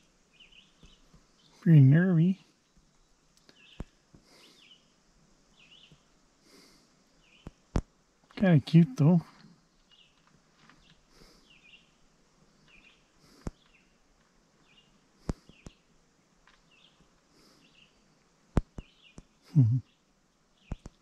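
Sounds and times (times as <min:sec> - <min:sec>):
faint high chirping calls: 0:00.0 - 0:06.1, 0:07.1 - 0:07.7, 0:08.4 - 0:15.9, 0:16.5 - 0:18.1, 0:18.7 - 0:21.0
brief low voice: 0:08.4 - 0:09.3, 0:19.5 - 0:19.8.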